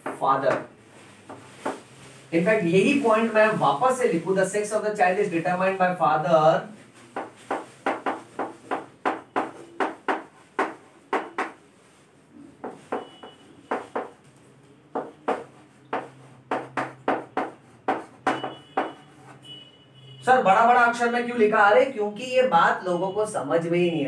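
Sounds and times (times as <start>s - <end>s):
chalk tapping and scraping: 0.0s - 2.3s, 6.8s - 11.6s, 12.6s - 19.4s.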